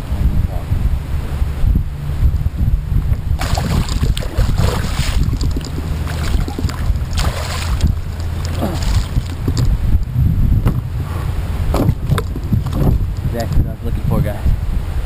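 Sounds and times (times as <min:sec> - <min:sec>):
wind rumble on microphone: 0:00.0 - 0:15.0
fish splashing at surface: 0:03.4 - 0:09.8.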